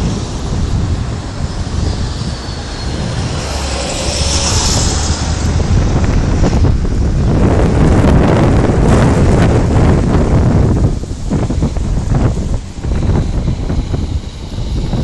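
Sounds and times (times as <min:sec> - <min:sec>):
road traffic: 0:00.0 - 0:15.0
tow truck driving up: 0:00.0 - 0:15.0
wind buffeting microphone: 0:00.0 - 0:15.0
car hissing past: 0:01.4 - 0:06.6.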